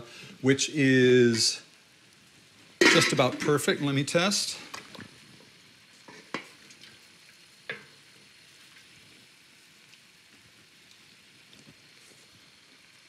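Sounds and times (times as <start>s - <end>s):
pan sauce sizzling: 0.0s - 13.0s
utensil clinking on metal pot: 2.8s - 3.6s.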